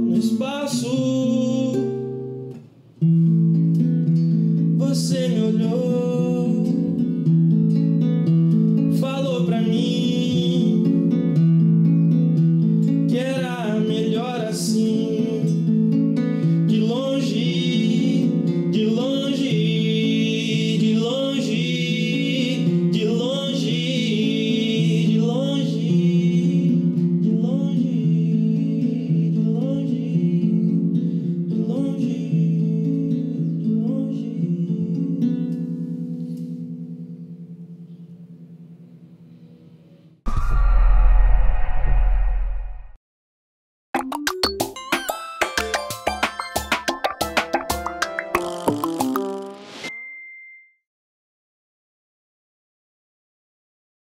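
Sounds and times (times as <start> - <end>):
man singing: 0.0 - 2.0, 4.8 - 7.1, 8.9 - 11.2, 13.0 - 15.8, 16.4 - 35.3
acoustic guitar: 0.0 - 39.6, 44.0 - 49.9.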